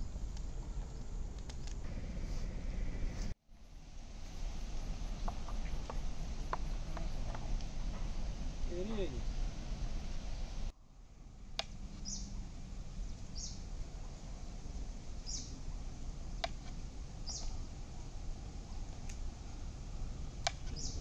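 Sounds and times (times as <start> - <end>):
low background noise: 0.0 - 21.0
bird chirping: 11.9 - 12.4, 13.2 - 13.7, 15.2 - 15.6, 17.2 - 17.6, 20.4 - 21.0.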